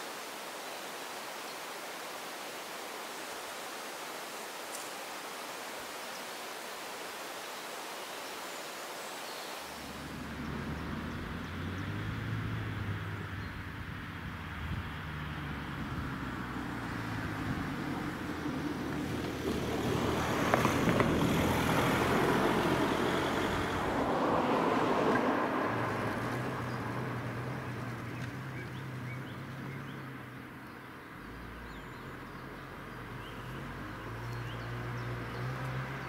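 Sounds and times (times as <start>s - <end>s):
road vehicles passing by: 9.5s - 36.0s.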